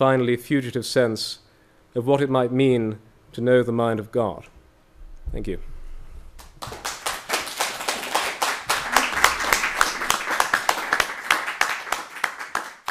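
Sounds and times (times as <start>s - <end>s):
audience applauding: 6.4s - 12.9s.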